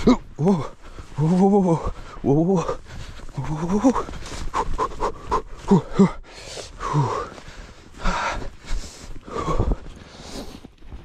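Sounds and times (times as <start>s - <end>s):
man breathing hard: 0.0s - 1.2s, 1.8s - 10.7s
man groaning and gasping: 0.0s - 7.4s.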